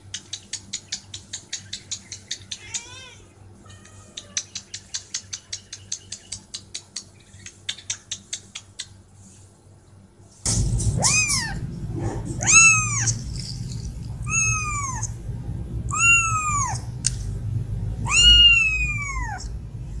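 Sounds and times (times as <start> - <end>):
kitten meowing: 2.5 - 4.6, 11.0 - 11.6, 12.4 - 13.2, 14.2 - 15.2, 15.9 - 16.9, 18.0 - 19.5.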